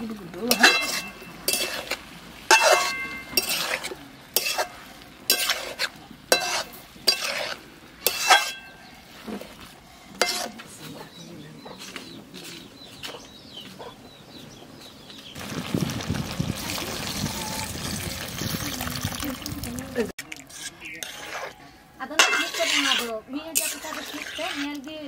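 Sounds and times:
metal spatula scraping a pan: 0.3 - 10.9, 20.4 - 25.0.

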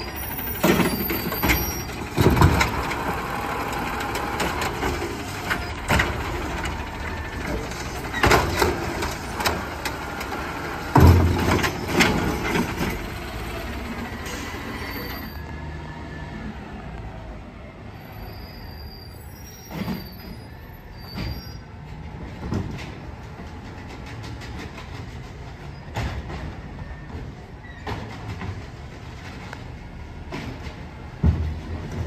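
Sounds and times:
high brake squeals: 0.0 - 2.2, 14.1 - 16.5, 17.9 - 21.9
garbage cart banging: 0.0 - 13.5
garbage truck running: 0.0 - 17.8, 18.4 - 32.0.

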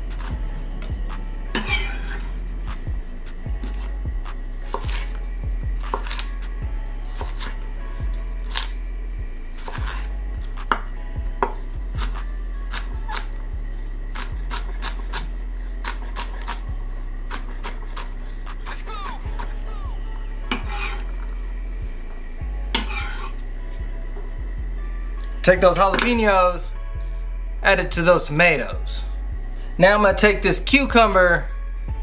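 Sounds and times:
knife chopping on wooden board: 4.7 - 5.1, 7.2 - 7.6.

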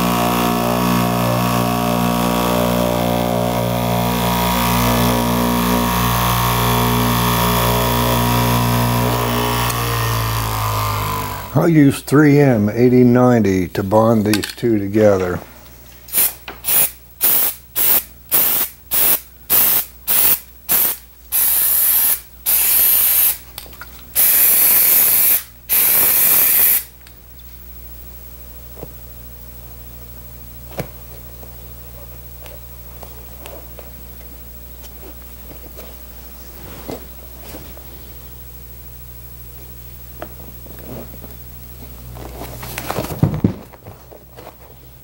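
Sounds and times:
aerosol can spraying: 16.1 - 23.4, 24.2 - 26.9.

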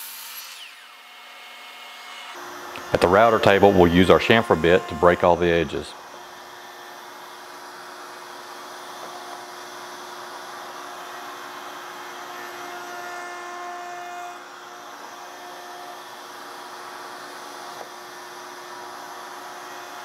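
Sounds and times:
router spinning: 0.0 - 13.0
dust extraction: 2.4 - 6.0.

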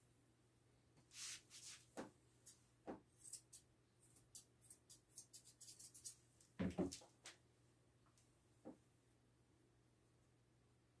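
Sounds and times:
shears snipping hair: 3.2 - 6.2.

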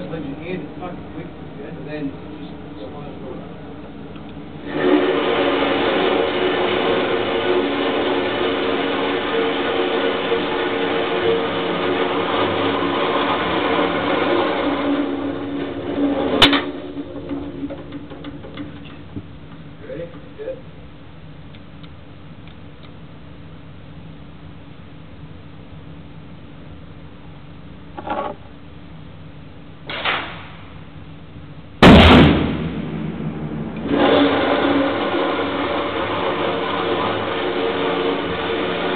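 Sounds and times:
motor whine and rattle: 0.0 - 20.3, 33.7 - 38.9
steady noise: 0.0 - 38.9
rifle shot echoing indoors: 29.9 - 30.8, 31.8 - 33.9.

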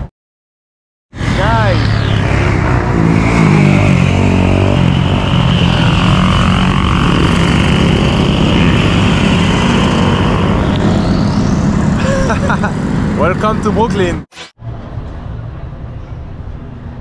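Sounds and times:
motorcycles revving and passing: 1.2 - 14.3.

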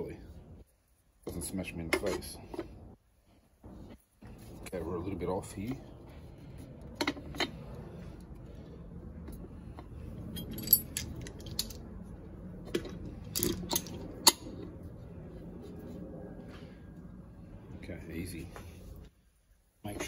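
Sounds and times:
metallic clicks and clinks: 10.3 - 11.8.

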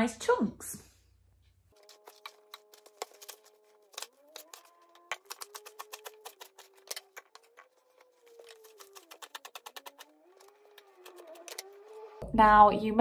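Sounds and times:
knife chopping on plastic board: 1.8 - 7.6.

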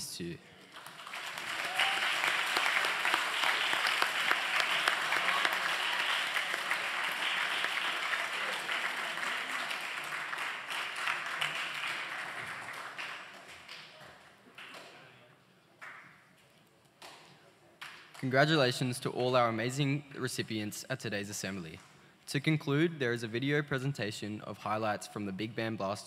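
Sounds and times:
audience applauding: 0.6 - 15.0.

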